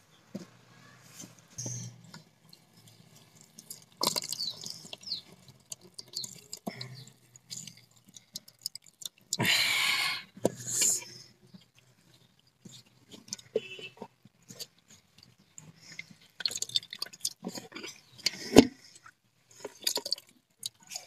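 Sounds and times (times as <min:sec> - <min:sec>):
small wet clicks: 0:01.2 - 0:09.5, 0:10.3 - 0:21.0
water dripping onto metal colander: 0:01.9 - 0:09.6, 0:10.3 - 0:18.5, 0:19.6 - 0:21.0
greens squeezed by hand: 0:02.6 - 0:11.2.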